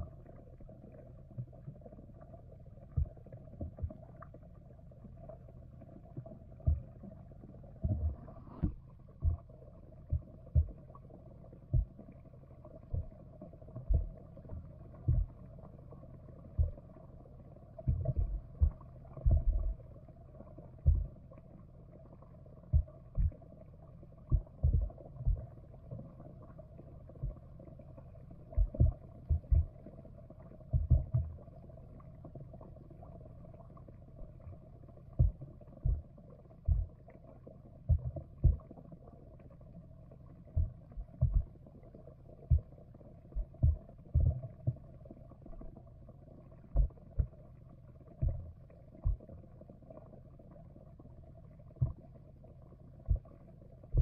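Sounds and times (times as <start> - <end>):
faint hum: 0.0 - 54.0
muffled underwater thuds: 2.9 - 4.0, 6.6 - 7.0, 7.8 - 9.5, 10.1 - 10.8, 11.7 - 12.0, 12.9 - 13.2, 13.8 - 14.2, 15.0 - 15.4, 16.5 - 16.8, 17.8 - 19.8, 20.8 - 21.2, 22.7 - 23.4, 24.3 - 25.5, 27.2 - 27.4, 28.5 - 29.8, 30.7 - 31.4, 35.2 - 37.0, 37.8 - 38.7, 40.6 - 41.6, 42.4 - 42.8, 43.4 - 44.9, 46.8 - 47.4, 48.2 - 49.4, 51.8 - 52.0, 53.0 - 53.3.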